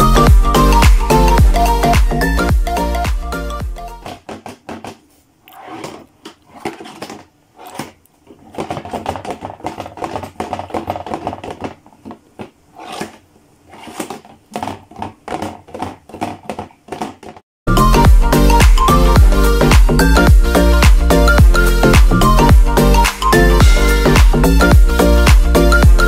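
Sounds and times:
object rattling in cardboard box: 4.1 - 17.4.

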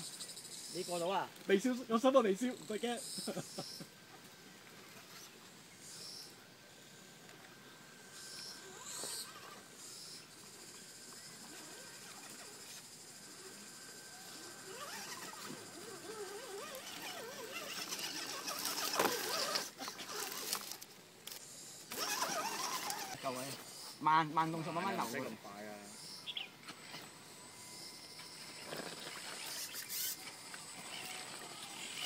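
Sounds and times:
toy truck motor and drivetrain: 8.1 - 24.0, 26.7 - 32.0
birds chirping: 22.5 - 26.6.

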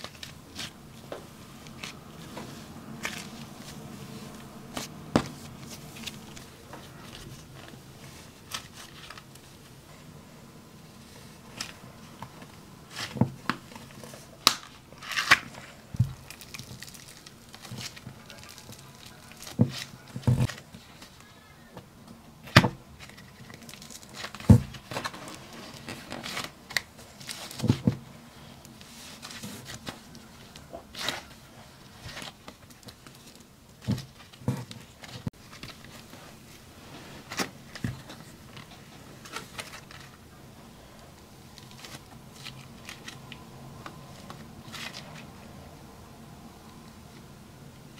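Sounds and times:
slime tearing and crackling: 14.4 - 19.9.

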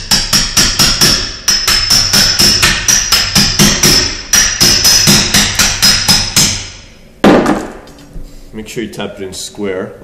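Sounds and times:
hammer tapping on metal: 0.0 - 6.7.

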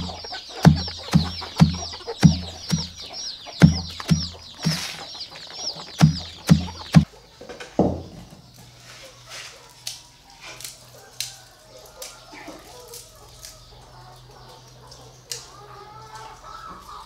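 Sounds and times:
dull thuds: 0.0 - 5.1, 5.9 - 7.1
chickens peeping: 0.0 - 17.0.

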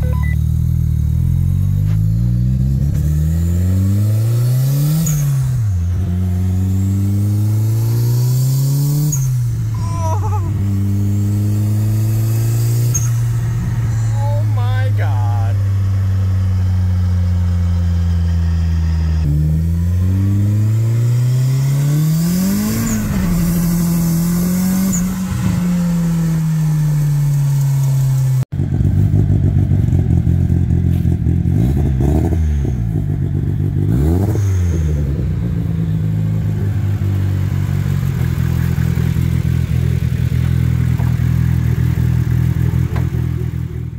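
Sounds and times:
car engine idling: 0.0 - 3.2, 9.2 - 19.9, 20.5 - 31.5, 35.1 - 43.9
engine blips: 0.0 - 28.4
car engine revving: 0.0 - 43.9.

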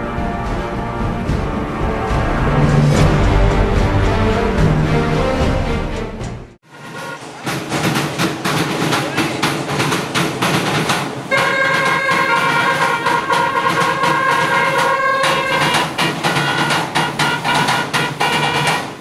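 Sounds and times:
loud steady horn blast: 0.0 - 5.7, 6.6 - 7.4, 11.3 - 19.0.

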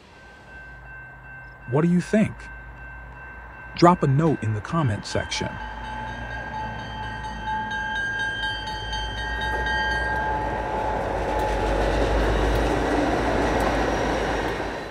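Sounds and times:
steady high ringing tone: 0.0 - 12.6
diesel train rumbling past: 0.0 - 14.9
wheels on rails: 5.6 - 14.9.

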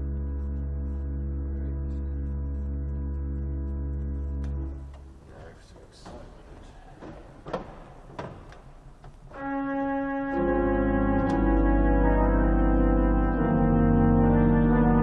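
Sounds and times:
pipe organ chord: 0.0 - 5.2, 9.3 - 15.0
clicks and knocks at organ console: 6.0 - 9.4, 11.1 - 12.3.

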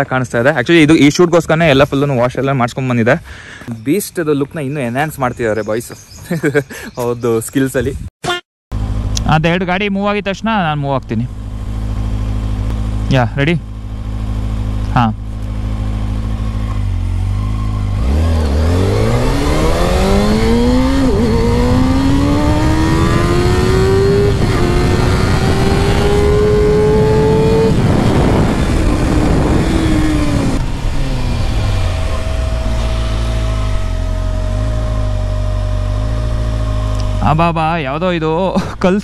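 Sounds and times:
motorcycle engine accelerating: 8.7 - 39.0
wind rush: 18.6 - 35.5.

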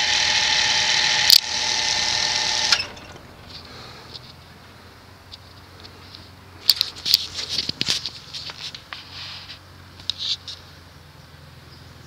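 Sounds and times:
box fan motor hum: 0.0 - 5.3.

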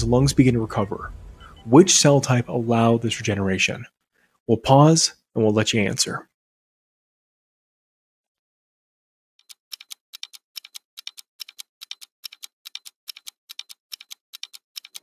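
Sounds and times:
clock ticking: 9.4 - 15.0.

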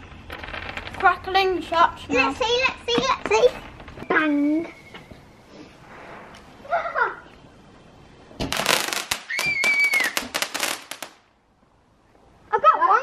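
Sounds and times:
firework crackling: 0.0 - 1.8, 8.3 - 11.4
children talking: 1.0 - 4.8, 6.6 - 7.4.

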